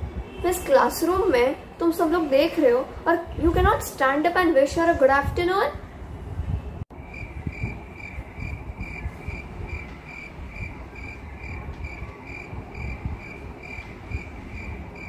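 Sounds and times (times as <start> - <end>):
cricket chirping: 7.0 - 15.0.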